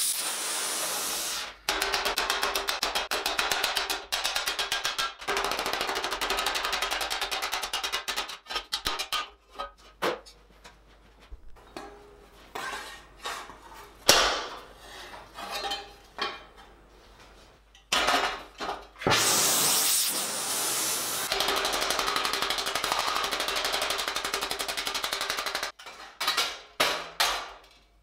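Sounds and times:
loud hissing rush: 0.0 - 1.5, 19.2 - 21.3
sheet steel and tools clanking: 11.5 - 19.1.

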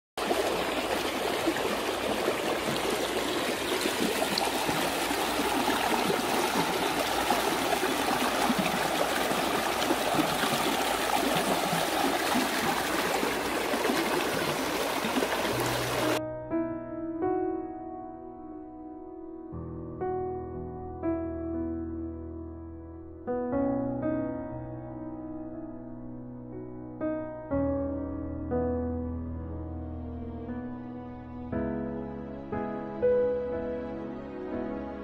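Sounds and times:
stream flowing over stones: 0.2 - 16.2.

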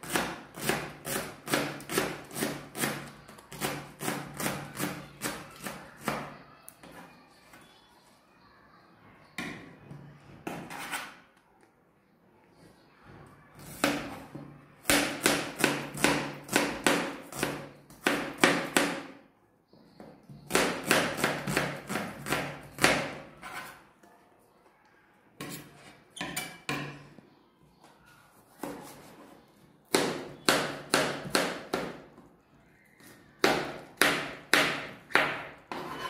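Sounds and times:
knife chopping on plastic board: 0.0 - 6.3, 14.8 - 19.2, 20.3 - 23.2, 29.9 - 32.0.

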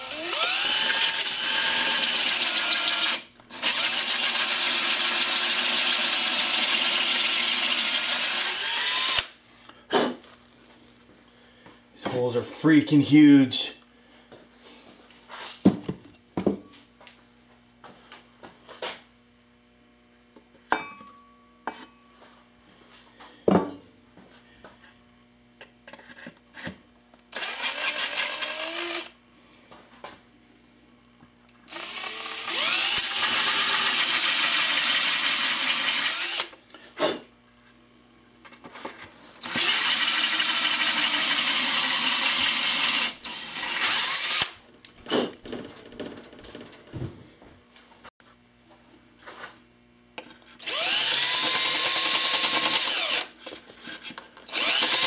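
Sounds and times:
cordless drill boring: 0.0 - 9.4, 27.3 - 29.2, 31.7 - 36.6, 39.4 - 44.6, 50.6 - 53.4, 54.4 - 55.0
handling knocks and clicks: 44.8 - 47.4.

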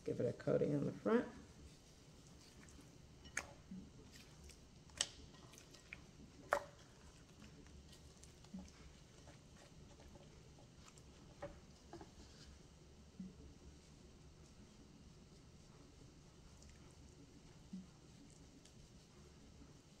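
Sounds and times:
hands patting meat squishes: 1.8 - 12.2.

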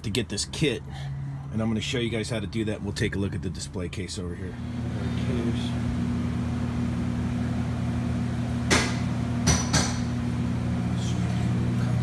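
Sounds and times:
refrigeration equipment humming: 0.0 - 12.0
sharp knocks: 8.7 - 10.1.

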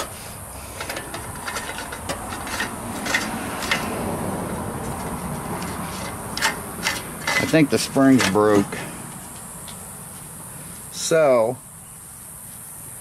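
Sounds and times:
metal scraping and rubbing: 0.0 - 9.0
metal clicks and knocks: 0.8 - 4.1, 5.6 - 8.7.

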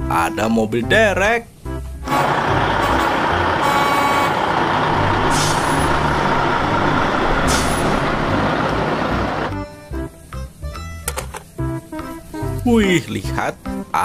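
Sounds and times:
diesel truck engine driving by: 2.0 - 9.6
air brake hisses: 4.1 - 8.4.

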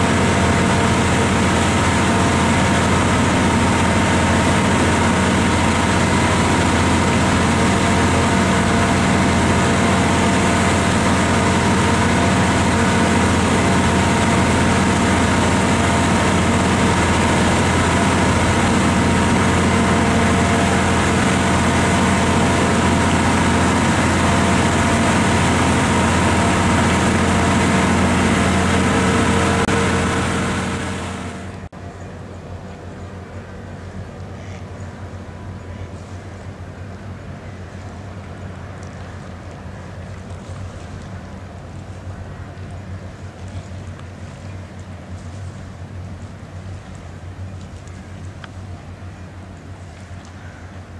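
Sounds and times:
rushing noise: 0.0 - 31.7
diesel engine drone: 0.0 - 50.9.

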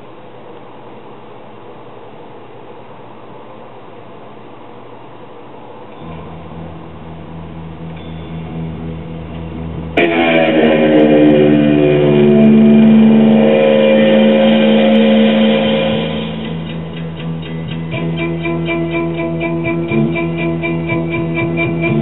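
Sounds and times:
low hum: 5.6 - 22.0
guitar music from record: 6.0 - 22.0.

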